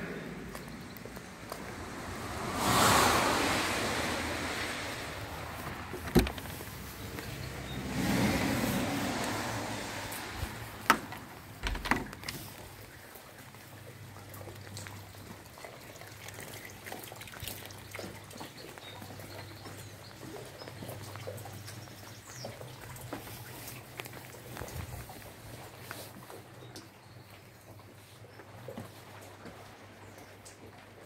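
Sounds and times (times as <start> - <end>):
water dripping and trickling: 0.2 - 31.0
door opening: 5.6 - 7.3, 10.4 - 12.6.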